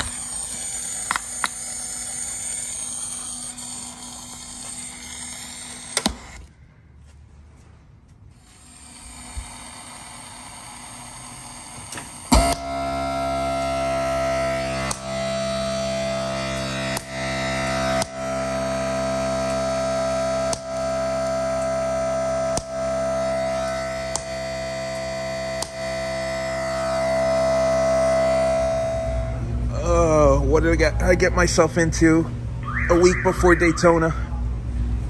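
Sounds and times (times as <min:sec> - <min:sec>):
speaker hiss with hum and whine: 0:03.9 - 0:35.0
steady tones from speakers: 0:10.6 - 0:35.0.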